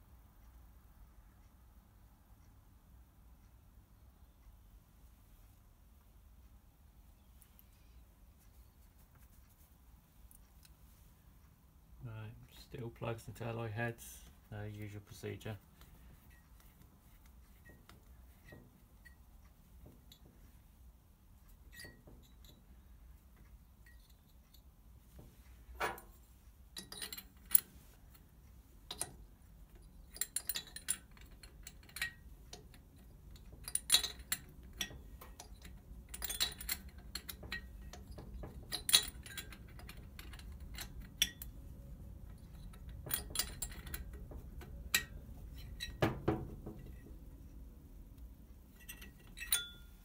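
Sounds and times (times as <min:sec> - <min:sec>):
metal tools clinking: 0:21.6 - 0:22.6, 0:25.8 - 0:28.2, 0:28.9 - 0:41.6, 0:42.2 - 0:47.1, 0:48.7 - 0:50.0.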